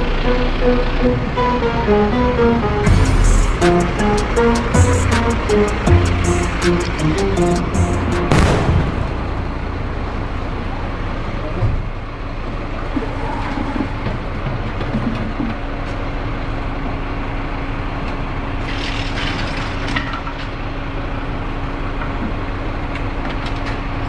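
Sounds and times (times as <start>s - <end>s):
steady tone: 0.0s - 11.0s
vehicle engine idling: 0.0s - 14.7s.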